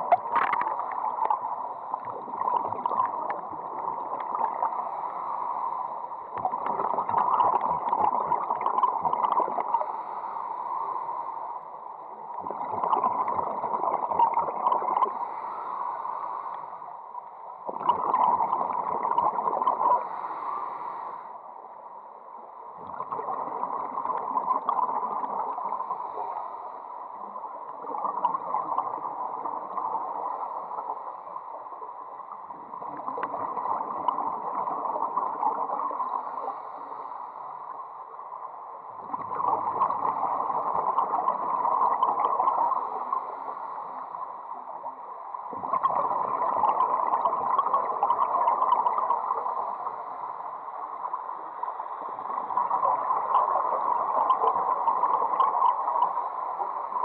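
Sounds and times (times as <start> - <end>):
underwater bubbling rushing water: 0.0 - 5.3, 6.2 - 10.0, 12.2 - 15.4, 17.6 - 20.2, 22.8 - 26.3, 27.2 - 31.0, 32.5 - 36.6, 39.0 - 43.6, 45.4 - 50.1, 50.8 - 57.0.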